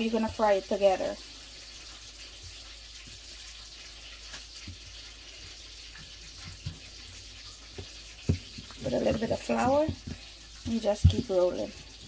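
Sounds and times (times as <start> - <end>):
rolling pin knocking on counter: 7.8 - 10.2.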